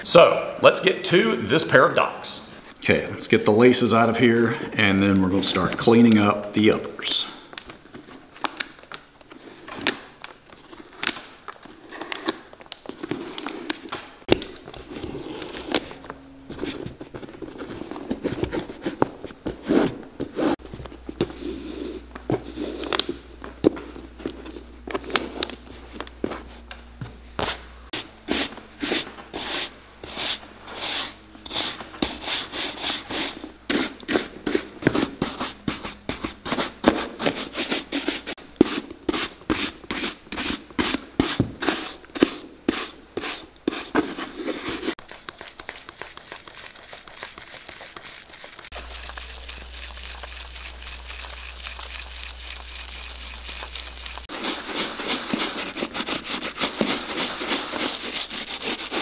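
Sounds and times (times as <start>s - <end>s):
soft scrubbing with foaming cleaner: 14.8s - 59.0s
stiff brush scrubbing leather boot: 27.4s - 59.0s.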